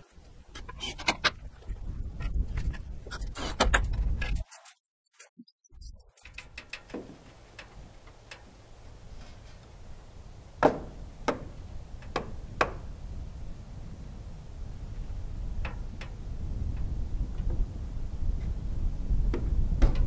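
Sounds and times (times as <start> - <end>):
metal clicks and taps: 6.2 - 8.5
low steady rumble: 6.6 - 20.0.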